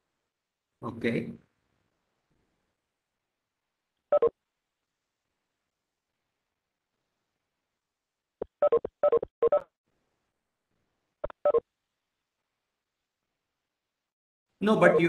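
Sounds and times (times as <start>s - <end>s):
choppy voice over online call: 14.6s - 15.0s.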